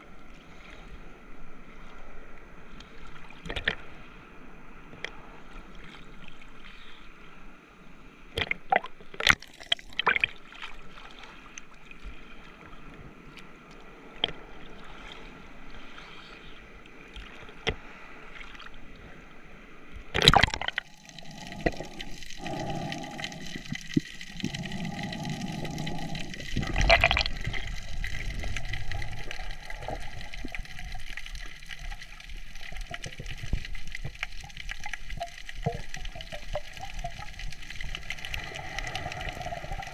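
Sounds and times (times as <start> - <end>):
water sloshing and gurgling: 0.0 - 7.3, 8.2 - 39.9
water rushing: 20.2 - 39.9.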